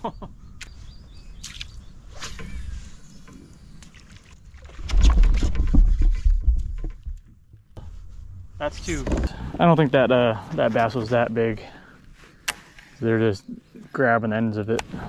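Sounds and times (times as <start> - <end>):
water sloshing around kayak: 2.4 - 7.4
rough splashing and rumble: 4.0 - 7.4.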